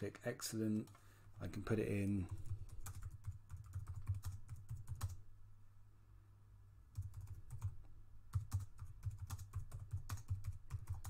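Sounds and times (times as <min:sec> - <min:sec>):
computer keyboard typing: 0:02.3 - 0:05.2, 0:06.9 - 0:11.0.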